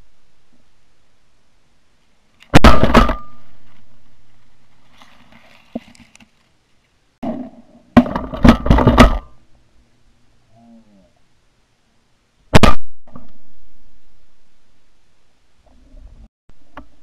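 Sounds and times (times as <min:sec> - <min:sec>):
shotgun blasts: 0:02.5 - 0:03.4, 0:12.5 - 0:12.9.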